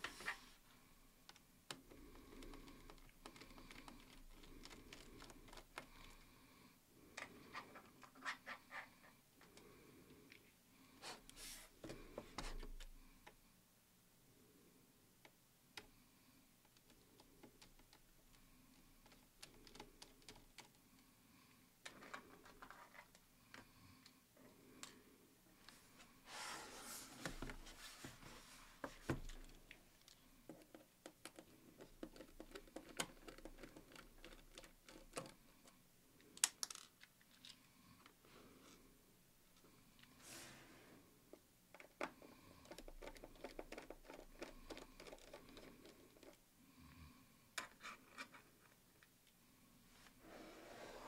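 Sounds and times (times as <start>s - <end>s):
clicks and taps on plastic laptop: 1.2s - 5.9s, 30.5s - 35.4s, 41.8s - 46.4s
laptop scraping on desk: 50.2s - 51.0s.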